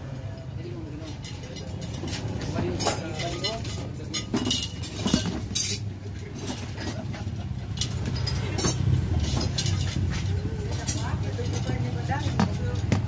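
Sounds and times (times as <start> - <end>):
light metallic clinks: 1.0 - 13.0.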